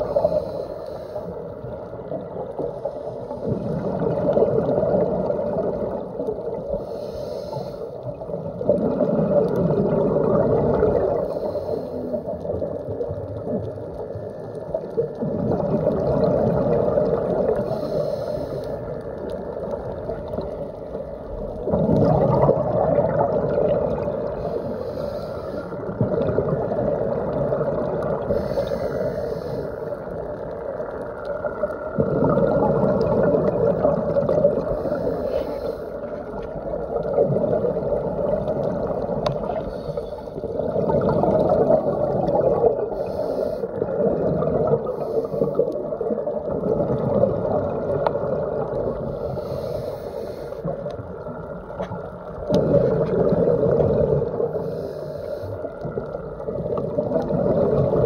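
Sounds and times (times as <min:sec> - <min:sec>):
faint regulator hiss: 0:00.0 - 0:15.2, 0:15.9 - 0:22.8, 0:23.4 - 0:47.0, 0:47.7 - 0:58.0
muffled underwater exhale bubbling: 0:00.0 - 0:58.0.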